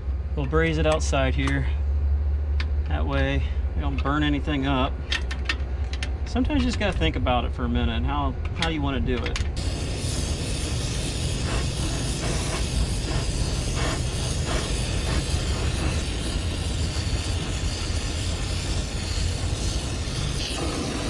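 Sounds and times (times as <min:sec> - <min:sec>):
brazing torch hissing: 0:09.6 - 0:21.0.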